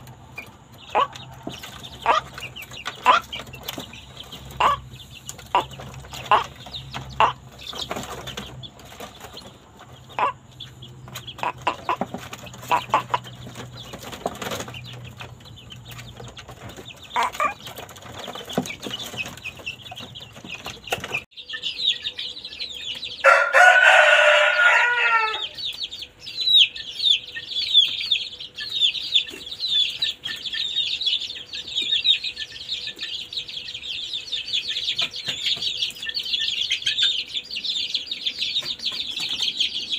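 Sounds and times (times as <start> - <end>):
chicks cheeping and clucking: 0.0 - 39.9
dense chatter of high peeps: 0.0 - 39.9
rooster crowing: 23.2 - 25.7.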